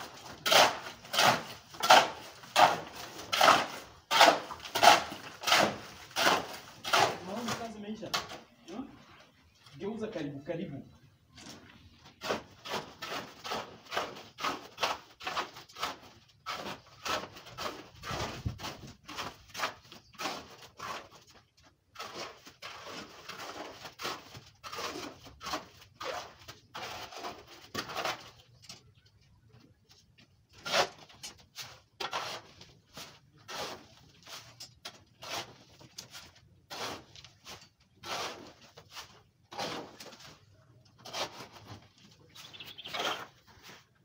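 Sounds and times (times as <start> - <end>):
shovel scraping stones and sand: 0.0 - 8.4, 12.1 - 28.5, 30.5 - 44.0.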